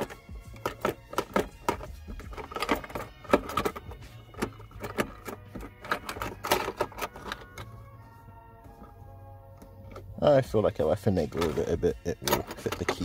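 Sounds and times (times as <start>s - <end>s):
plastic compartment clicking and knocking: 0.0s - 7.7s
keys clinking: 0.0s - 7.8s, 11.3s - 13.0s.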